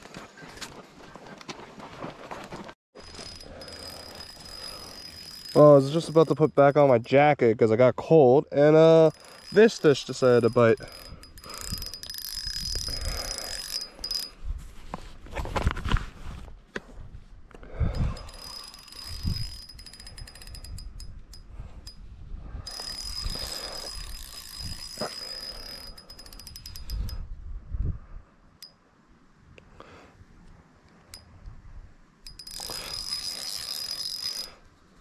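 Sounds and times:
reel drag clicking: 3.0 - 6.4, 9.1 - 14.3, 18.2 - 22.0, 22.7 - 27.1, 32.2 - 34.6
fishing reel cranking: 3.0 - 6.6, 8.8 - 14.4, 18.0 - 22.0, 22.6 - 27.2, 32.3 - 34.6.

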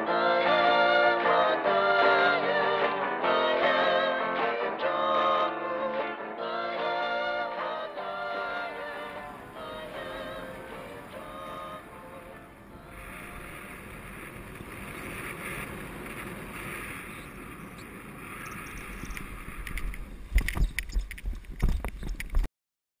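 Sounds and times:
wind rushing over microphone: 8.7 - 22.5
thumps and buffeting on landing: 18.9 - 22.5.

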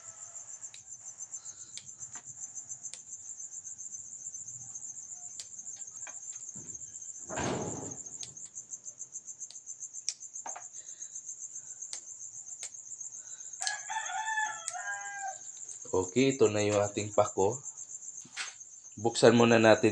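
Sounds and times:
rooster crowing: 0.0 - 0.8, 13.5 - 15.7
crickets chirping: 0.0 - 19.9
plant stems snapping: 13.6 - 13.8.

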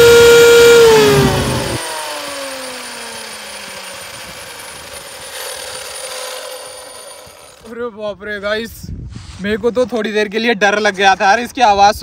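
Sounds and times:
electric motor whine winding down: 0.0 - 7.7.

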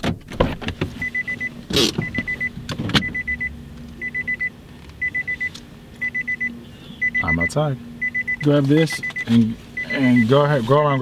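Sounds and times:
steady low hum: 0.0 - 11.0
car warning chime beeps: 1.0 - 11.0.

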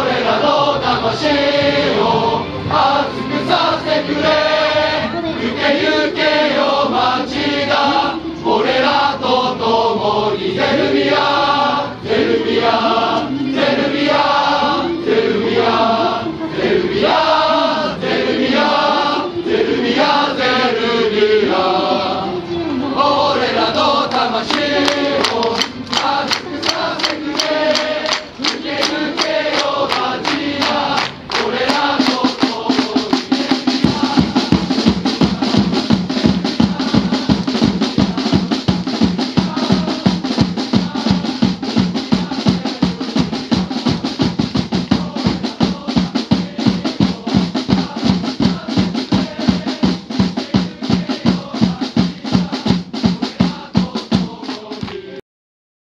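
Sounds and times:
crowd chanting: 0.0 - 55.2
drum beats: 24.0 - 55.2.

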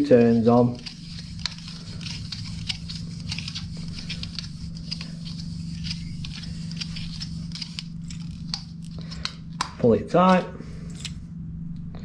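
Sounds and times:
tape crackling as it unreels: 0.0 - 9.6
steady low hum: 0.0 - 12.0.

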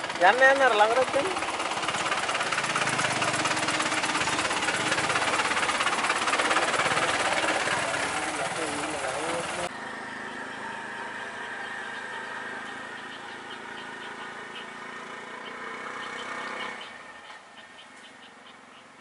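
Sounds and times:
vehicle engine idling: 0.0 - 19.0.

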